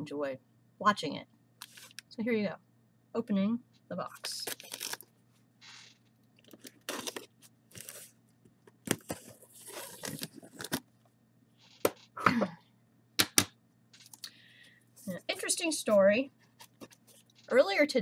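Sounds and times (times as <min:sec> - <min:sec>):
cardboard cracking: 0:04.4 - 0:05.1, 0:06.4 - 0:08.1, 0:08.8 - 0:10.9.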